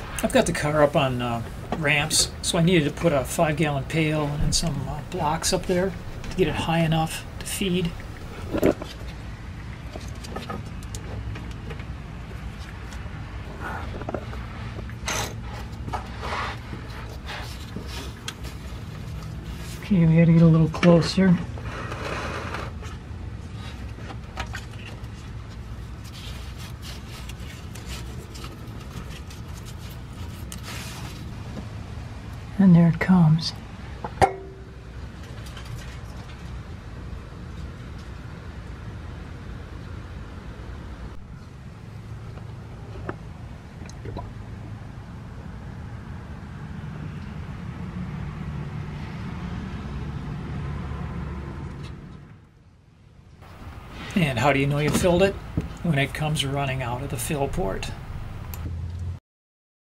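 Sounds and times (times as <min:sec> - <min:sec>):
steady low hum: 0:00.0 - 0:21.9, 0:51.5 - 0:58.7
motor vehicle rumble: 0:00.0 - 0:59.2.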